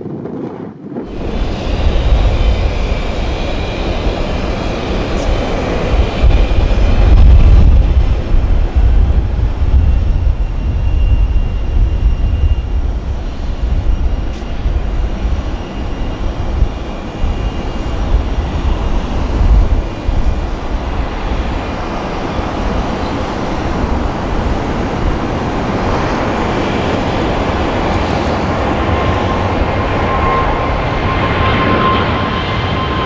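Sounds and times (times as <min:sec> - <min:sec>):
jet engines rumbling: 0:00.0 - 0:33.0.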